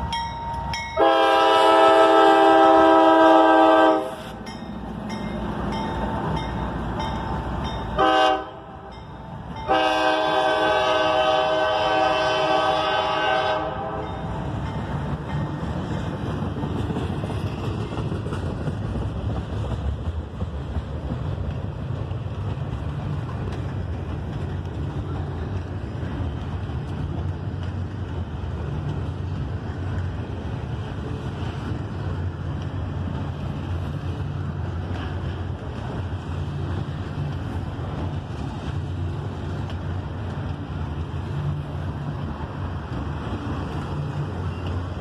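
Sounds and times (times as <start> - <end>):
train wheels rumbling on rail: 0.0 - 45.0
locomotive air horn: 1.0 - 4.4, 8.0 - 8.8, 9.7 - 14.2.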